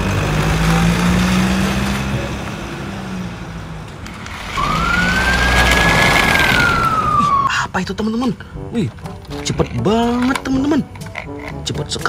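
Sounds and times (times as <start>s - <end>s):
toy car motor humming: 4.1s - 7.2s
toy electronic siren wailing: 4.5s - 7.6s.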